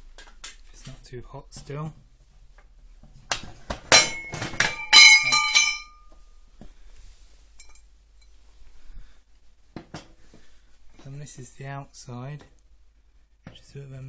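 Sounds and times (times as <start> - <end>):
steel angle iron clanking: 3.9 - 6.0.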